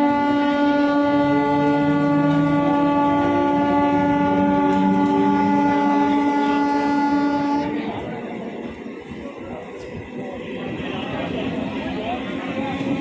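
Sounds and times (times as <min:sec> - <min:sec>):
train horn long blast: 0:00.0 - 0:08.0.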